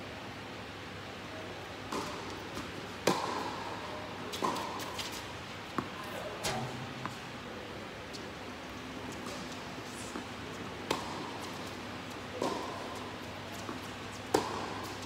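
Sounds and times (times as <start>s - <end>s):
ball bouncing on hard court: 1.9s - 2.2s, 3.0s - 3.5s, 12.4s - 12.8s, 13.7s - 15.0s
rackets hitting tennis ball: 1.9s - 5.2s, 9.2s - 15.0s.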